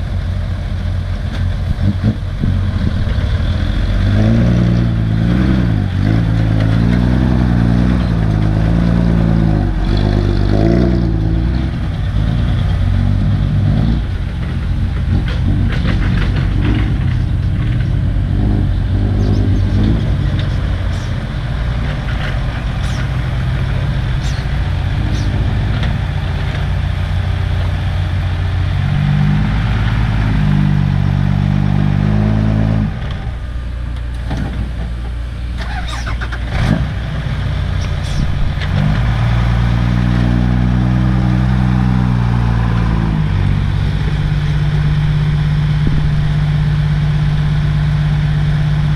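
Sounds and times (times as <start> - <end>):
diesel truck engine revving: 0.0 - 48.9
clattering: 14.3 - 18.0.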